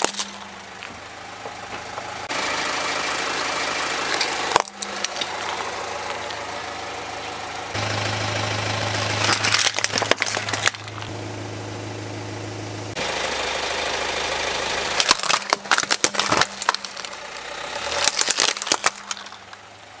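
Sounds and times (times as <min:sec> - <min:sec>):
car engine idling: 0:00.0 - 0:20.0
plastic cracking and snapping: 0:09.2 - 0:11.1, 0:15.0 - 0:17.2, 0:17.9 - 0:19.6.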